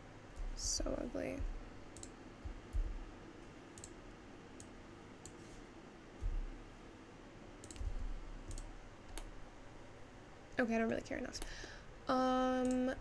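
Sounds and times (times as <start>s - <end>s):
dull low thumps: 1.4s - 1.7s, 2.4s - 3.2s, 6.2s - 6.7s, 7.8s - 8.4s
mouse and keyboard clicks: 7.6s - 9.3s.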